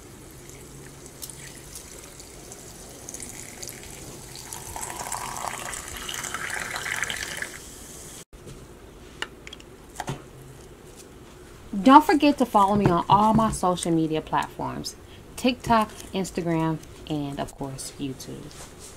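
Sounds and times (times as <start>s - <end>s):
sparkling water pouring into pitcher: 0.2s - 7.7s.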